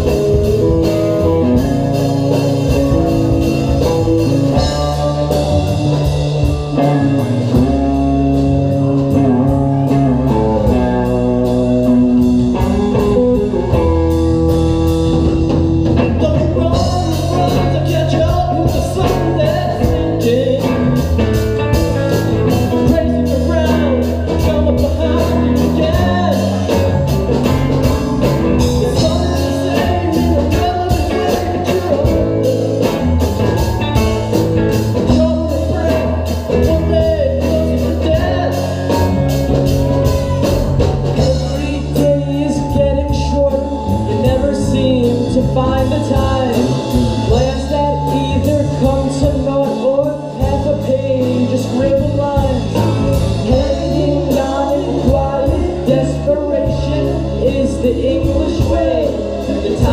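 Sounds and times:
rock band playing: 0.0 - 59.9
person singing: 15.1 - 21.4, 22.0 - 59.9.

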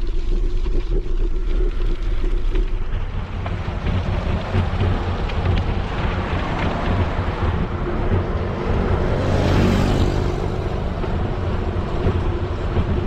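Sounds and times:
wind buffeting microphone: 1.1 - 13.0.

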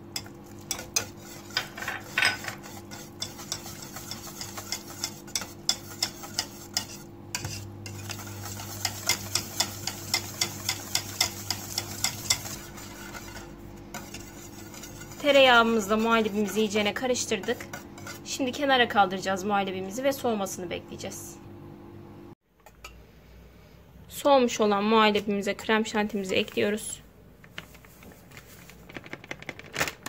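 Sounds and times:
whisk ticking against metal pot: 0.1 - 18.3.

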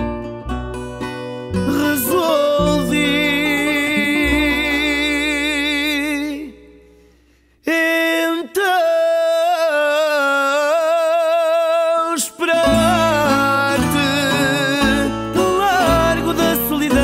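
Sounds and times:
guitar and bass: 0.0 - 7.6, 12.6 - 17.0
man singing long wavering notes: 1.6 - 6.7, 7.7 - 17.0.

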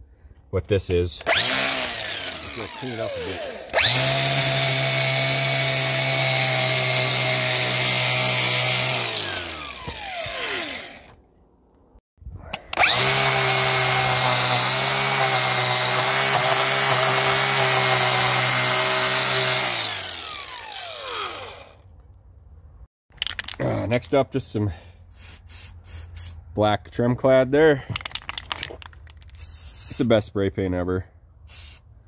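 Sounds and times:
angle grinder whining: 1.2 - 11.2, 12.6 - 21.9.

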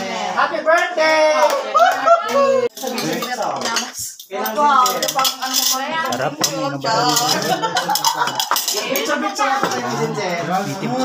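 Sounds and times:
people talking at once: 0.0 - 11.0
utensils clinking against plates: 2.7 - 10.2.

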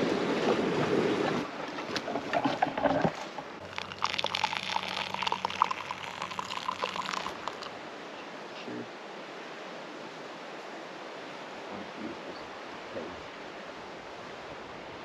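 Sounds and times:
hot water pouring and splashing: 1.4 - 7.7.

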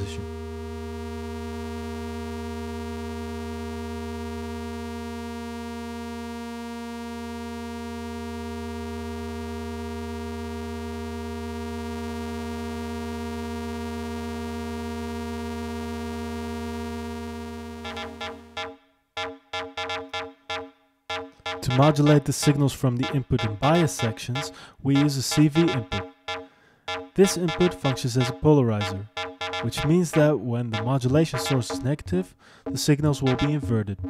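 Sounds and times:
droning synthesizer tone: 0.0 - 31.9
short rhythmic synth hits: 17.9 - 31.9, 32.6 - 33.8.

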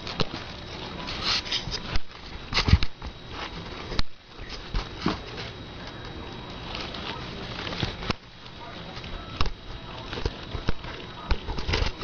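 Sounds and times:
rustling: 0.0 - 9.3.

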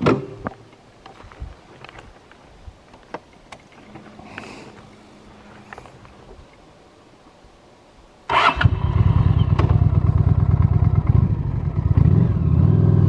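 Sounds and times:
motorcycle engine starting and running: 8.3 - 13.0.

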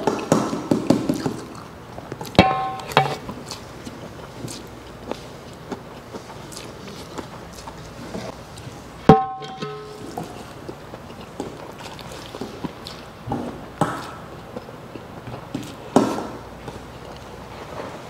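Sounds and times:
chewing noodles: 0.0 - 2.4, 3.2 - 9.0, 10.1 - 18.0
fork striking metal bowl: 2.4 - 3.2, 9.1 - 10.2.

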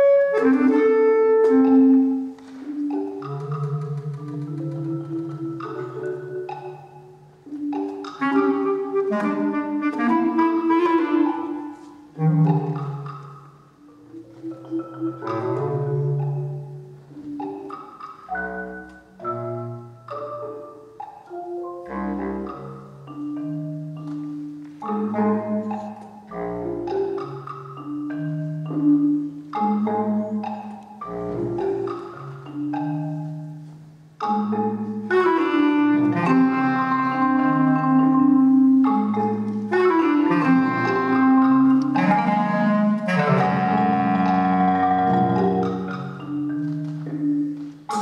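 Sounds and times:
bass clarinet low notes: 0.0 - 2.3, 8.1 - 13.1, 21.8 - 23.0, 25.0 - 27.2, 31.0 - 31.9, 35.1 - 46.2
marimba played with mallets: 0.0 - 48.0.

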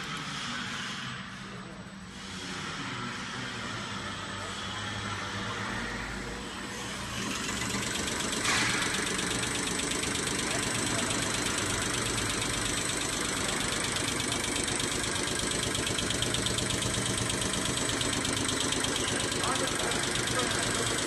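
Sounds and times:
test bench motor running: 6.8 - 21.0
injector ticking: 7.2 - 21.0.

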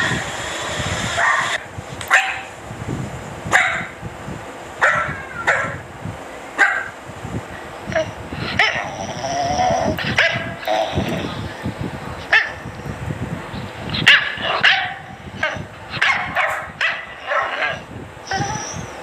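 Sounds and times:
dogs barking: 1.1 - 2.6, 3.5 - 4.0, 4.8 - 5.9, 6.5 - 7.0, 7.9 - 11.6, 12.2 - 12.8, 13.8 - 19.0.

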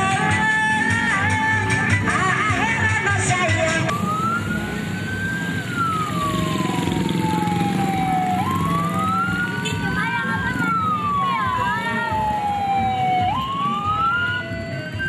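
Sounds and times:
music with singing: 0.0 - 6.2, 7.8 - 15.0
police siren wailing: 0.0 - 15.0.

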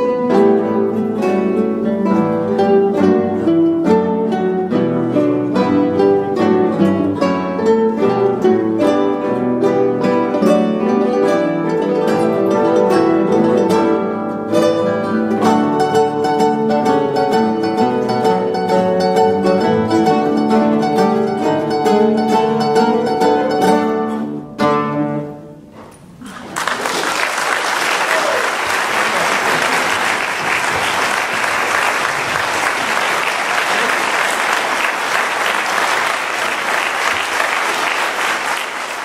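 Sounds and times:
classical guitar ensemble: 0.0 - 39.0
audience applause: 26.2 - 39.0.

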